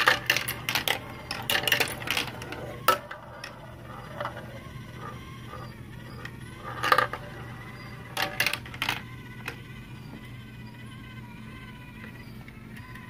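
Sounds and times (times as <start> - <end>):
marbles clattering through plastic track: 0.0 - 9.8
low motor hum: 0.0 - 13.0.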